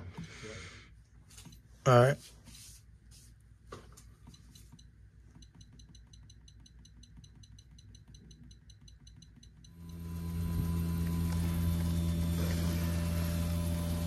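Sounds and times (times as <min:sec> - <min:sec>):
thermostat beeps: 0:04.2 - 0:10.0.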